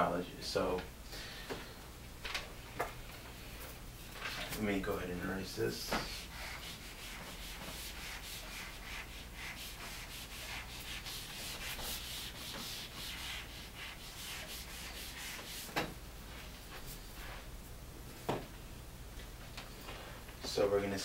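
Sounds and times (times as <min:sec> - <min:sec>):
eraser rubbing on whiteboard: 0:06.0 - 0:15.8.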